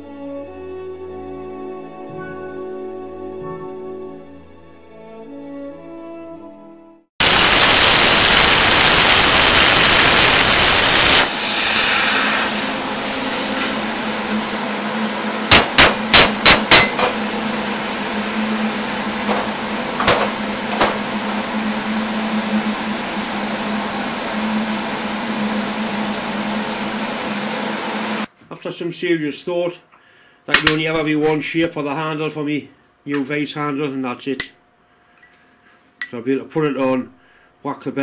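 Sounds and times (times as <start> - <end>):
plasma cutter hissing: 7.2 - 28.3
steady hum: 7.2 - 28.3
sharp knocks on metal plate: 15.5 - 17.2, 19.3 - 21.0.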